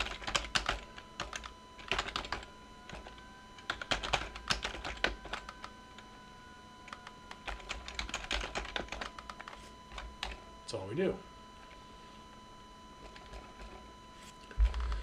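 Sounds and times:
keyboard typing: 0:00.0 - 0:05.8, 0:06.8 - 0:10.4, 0:13.0 - 0:13.8, 0:14.4 - 0:15.0.

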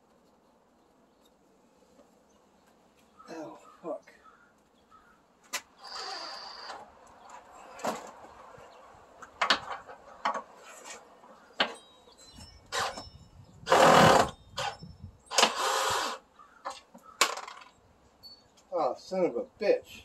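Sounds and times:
cordless drill driving screws: 0:05.8 - 0:06.8, 0:12.7 - 0:13.0, 0:13.7 - 0:16.2.

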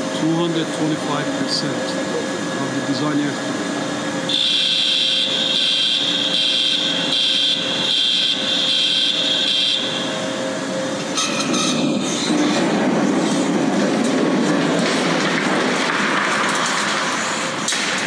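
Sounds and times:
pulsing high-pitched tone: 0:04.3 - 0:12.1.

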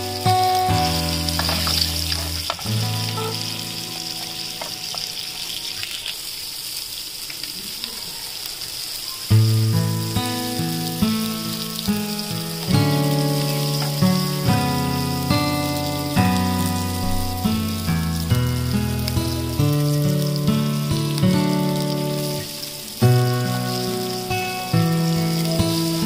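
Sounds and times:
background music sustained notes: 0:00.0 - 0:05.8, 0:09.5 - 0:26.0
eggs sizzling in hot oil: 0:00.0 - 0:26.0
metal tongs clicking on pan: 0:01.3 - 0:02.6.

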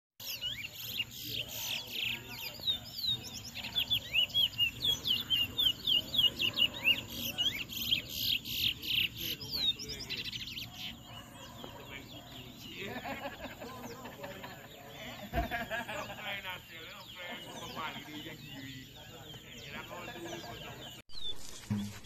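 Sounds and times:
finch singing whistled chirps: 0:00.2 - 0:12.7.

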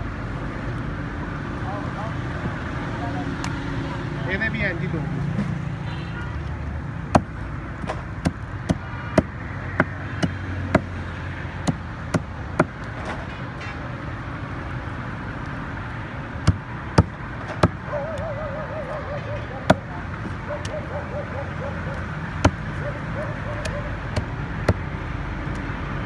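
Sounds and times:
knife chopping on wooden block: 0:22.4 - 0:22.6.

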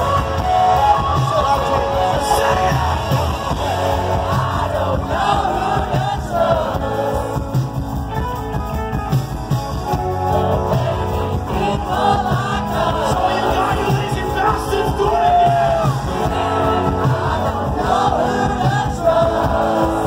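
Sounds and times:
person singing lead vocal: 0:00.0 - 0:07.9, 0:09.9 - 0:20.0
live rock band: 0:00.0 - 0:20.0.

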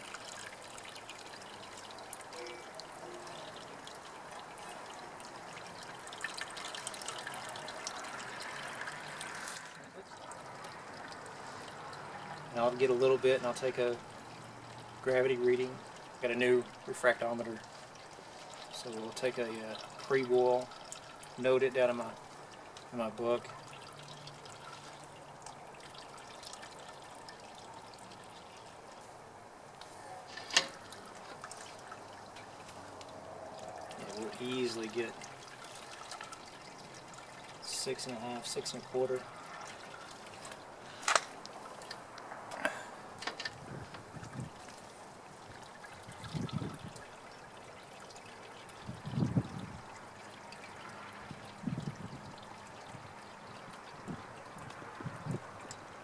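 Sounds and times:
liquid trickling and dripping into kettle: 0:00.0 - 0:56.0.

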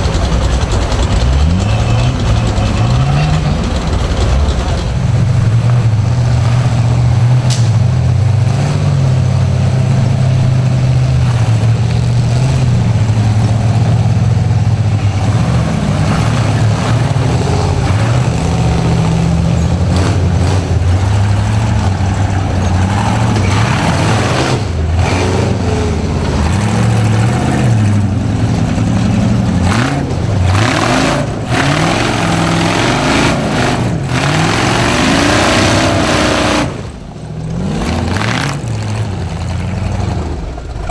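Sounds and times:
buggy engine revving: 0:00.0 - 0:40.9.

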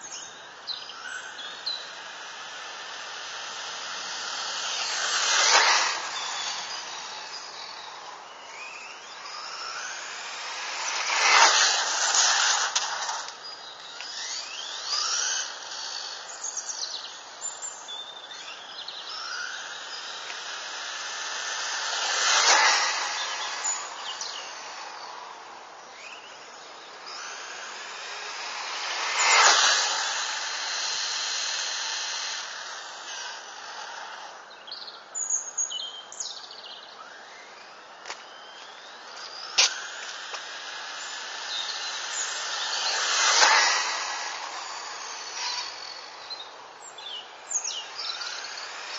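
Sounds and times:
high electric motor whine: 0:00.0 - 0:35.2, 0:36.8 - 0:48.9
rc car tyre rush: 0:00.0 - 0:48.9.

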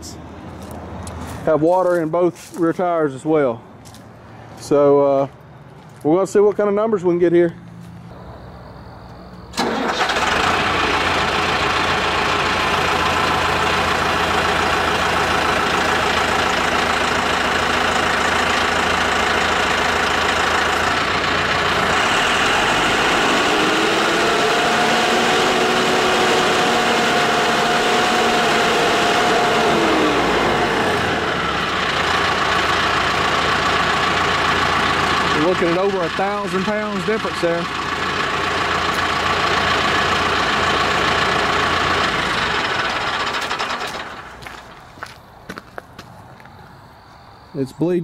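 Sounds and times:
tractor diesel engine running hard: 0:08.1 - 0:45.6.

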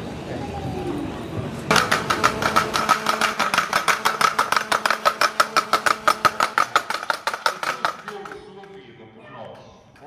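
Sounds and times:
wooden clapper clacking: 0:01.7 - 0:08.9.

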